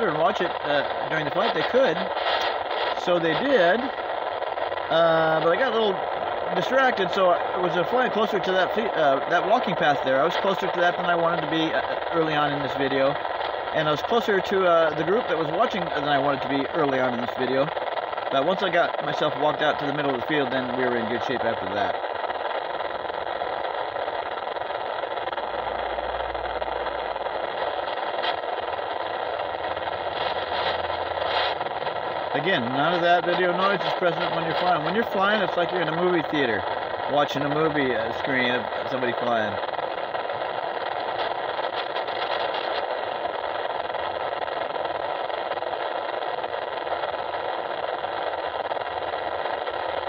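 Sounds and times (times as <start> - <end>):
model airplane motor drone: 0.0 - 50.0
wind rush: 20.6 - 49.2.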